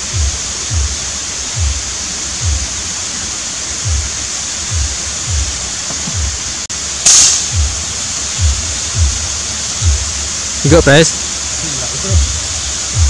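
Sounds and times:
footsteps: 0:00.0 - 0:02.8, 0:03.8 - 0:07.8
steady outdoor hiss: 0:00.0 - 0:13.0
air rifle firing: 0:07.0 - 0:07.8.

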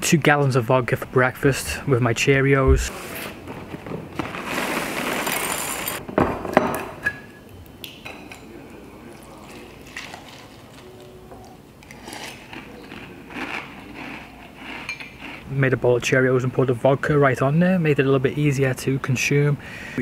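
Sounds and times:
cereal poured into bowl: 0:04.2 - 0:06.0.

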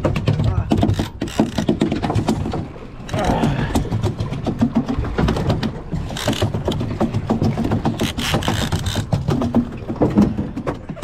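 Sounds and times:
boat engine running: 0:00.0 - 0:11.0
fishing rods clicking and knocking: 0:00.0 - 0:11.0.

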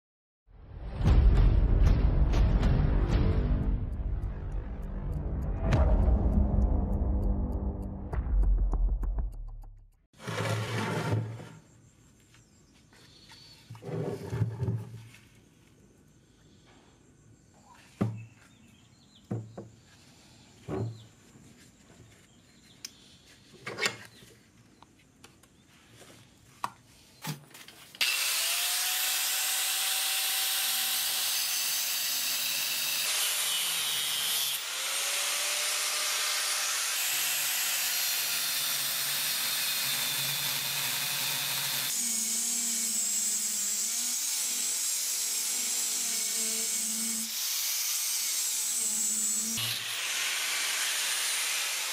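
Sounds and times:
angle grinder cutting steel: 0:28.0 - 0:51.9.

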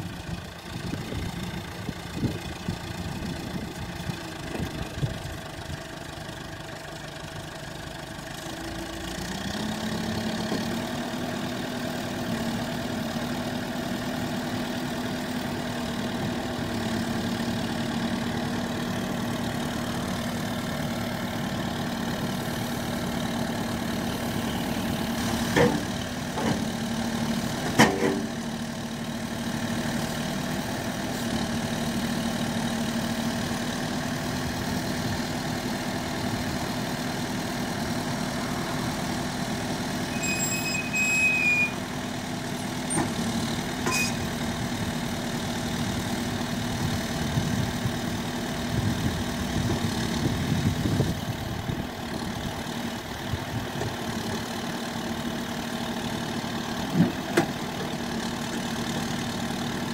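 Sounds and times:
diesel engine running: 0:00.0 - 0:59.9
brief high squeal: 0:40.1 - 0:41.8, 0:43.8 - 0:44.2.

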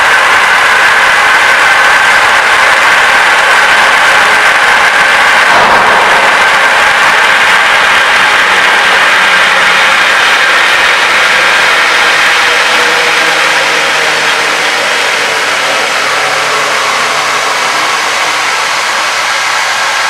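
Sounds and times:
water cavitating through a valve: 0:00.0 - 0:20.0.

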